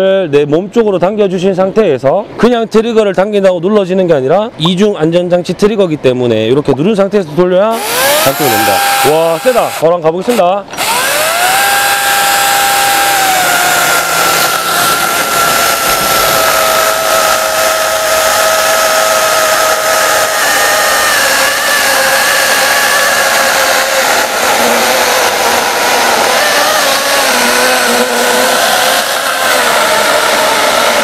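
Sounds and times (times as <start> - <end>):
electric chainsaw motor whining: 7.7 - 31.0.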